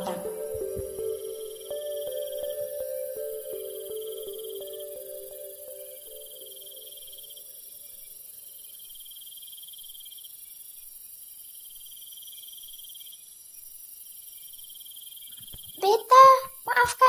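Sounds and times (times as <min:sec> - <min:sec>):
crickets chirping: 0:00.0 - 0:17.0.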